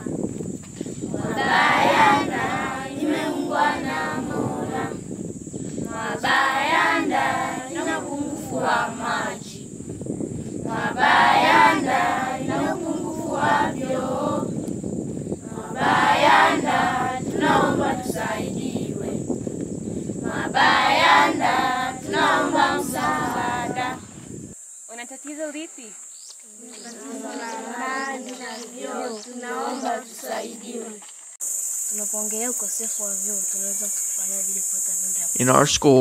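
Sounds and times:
children's choir singing: 0:01.1 - 0:05.1, 0:05.8 - 0:09.7, 0:10.6 - 0:14.7, 0:15.4 - 0:19.3, 0:20.2 - 0:24.1, 0:26.6 - 0:31.0, 0:35.4 - 0:36.0.

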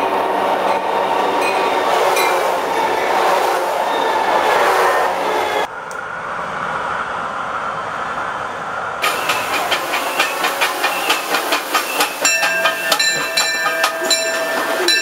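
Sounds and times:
light rail train passing: 0:00.0 - 0:15.0
crossing warning bell ringing: 0:01.4 - 0:02.6, 0:09.0 - 0:15.0.

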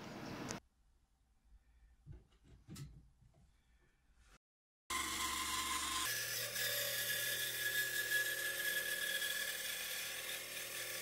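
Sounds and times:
bandsaw motor whine: 0:04.9 - 0:11.0
saw blade cutting wood: 0:04.9 - 0:11.0.

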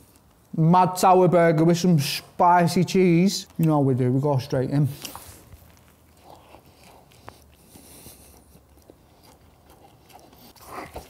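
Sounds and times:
person chewing: 0:04.9 - 0:11.0.

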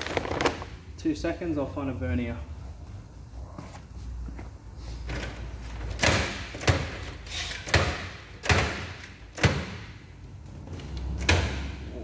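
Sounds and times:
knocks and thuds of tools: 0:05.1 - 0:10.0.

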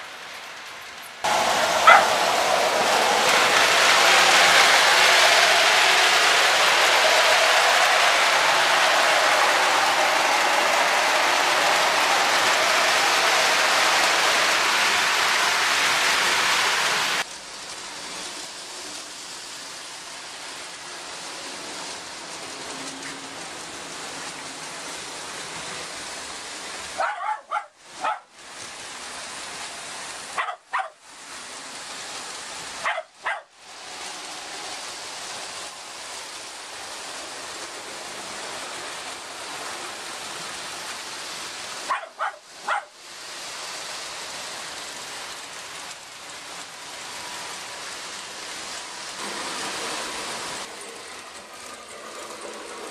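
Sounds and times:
toy trains running on track: 0:00.0 - 0:52.9
short sharp bark-like sounds: 0:01.8 - 0:02.2, 0:27.0 - 0:28.3, 0:41.9 - 0:42.9.

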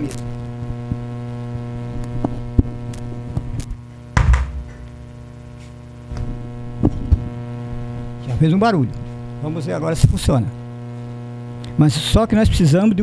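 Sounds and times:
electrical mains hum: 0:00.0 - 0:13.0
loud thump from speakers: 0:04.2 - 0:05.2.

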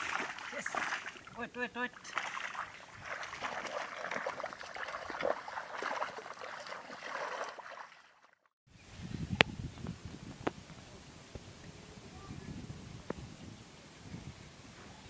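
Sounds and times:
muddy water sloshing and splashing: 0:00.0 - 0:08.5.

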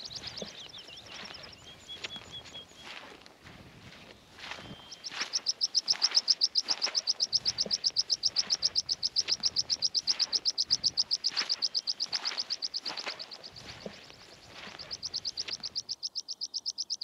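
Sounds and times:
bird trilling: 0:00.0 - 0:03.1, 0:04.4 - 0:17.0.

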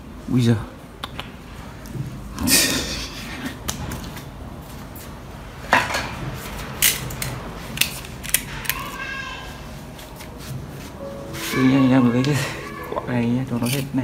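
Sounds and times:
short rising squeak-like tone: 0:11.0 - 0:13.7.

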